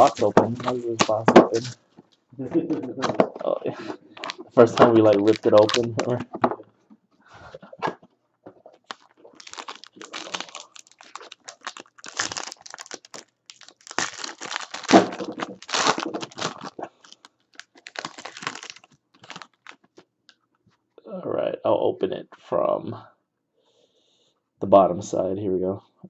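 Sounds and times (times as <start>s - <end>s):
foil wrapper crinkling and tearing: 0.0s - 1.8s, 4.2s - 6.2s, 8.8s - 20.0s.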